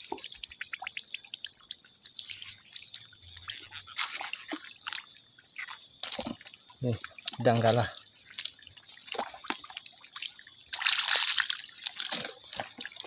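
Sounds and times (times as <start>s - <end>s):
crickets chirping: 0.0s - 13.0s
short wet splashes: 3.8s - 13.0s.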